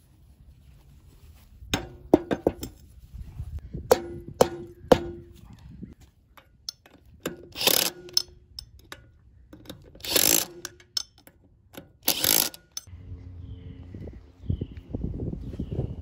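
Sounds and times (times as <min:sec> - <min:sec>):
cordless drill bursts: 0:10.0 - 0:10.6, 0:12.0 - 0:12.7.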